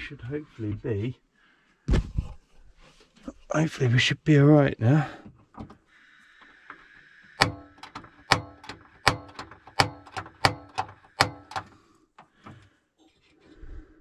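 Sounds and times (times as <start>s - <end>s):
hob igniter clicking: 7.4s - 12.4s.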